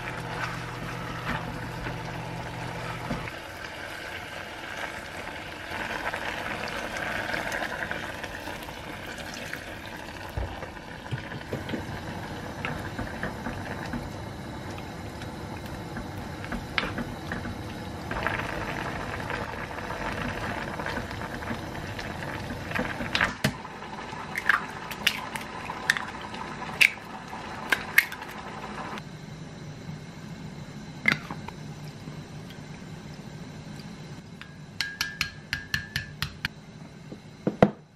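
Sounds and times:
food simmering and bubbling: 0.0 - 29.0
chopstick tapping ceramic mug: 34.8 - 36.5.

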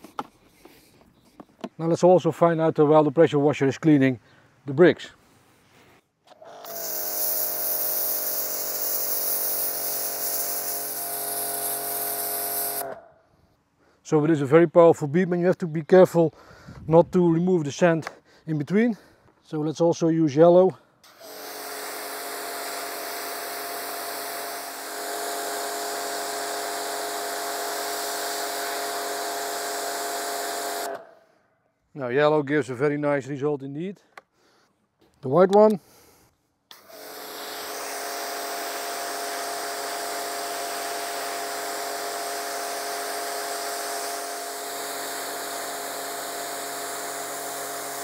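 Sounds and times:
pressure washer motor humming: 6.3 - 13.0, 21.0 - 31.0, 36.7 - 48.0
water jet hissing on paving: 6.7 - 12.9, 21.2 - 30.9, 36.9 - 48.0.

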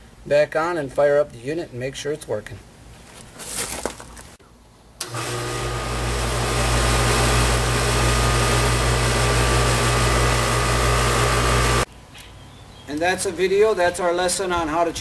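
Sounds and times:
contactor closing: 5.0 - 11.9.

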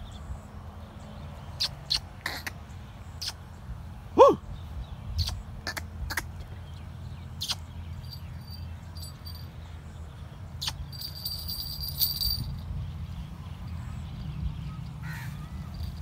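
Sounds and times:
short sharp bird calls: 1.6 - 3.5, 4.2 - 6.4
low steady rumble: 3.9 - 16.0.

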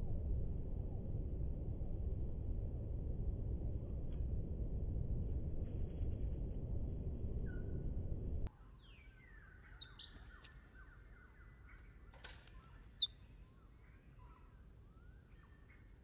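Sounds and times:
low rumble: 0.0 - 8.5
songbirds chirping and calling: 8.5 - 16.0.

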